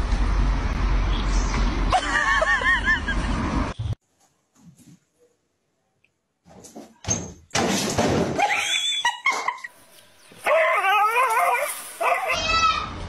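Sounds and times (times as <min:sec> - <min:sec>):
dog barking and whining: 0:10.3 - 0:12.8.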